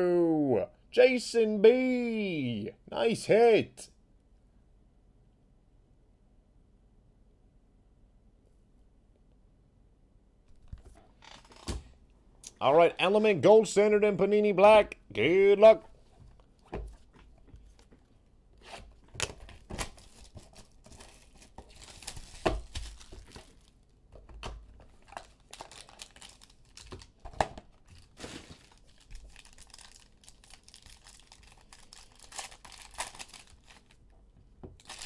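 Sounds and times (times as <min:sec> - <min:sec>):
cardboard and plastic tearing: 0:18.6 - 0:34.0, 0:34.8 - 0:35.0.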